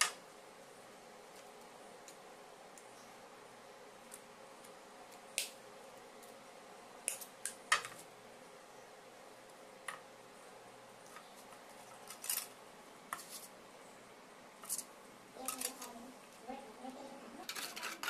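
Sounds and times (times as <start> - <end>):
small pipe pieces handled: 11.0 - 13.5, 17.4 - 18.0.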